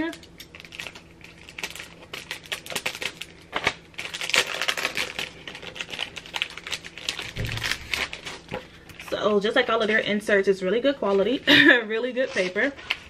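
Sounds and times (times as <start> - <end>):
paper wrapping crinkling: 0.3 - 9.7.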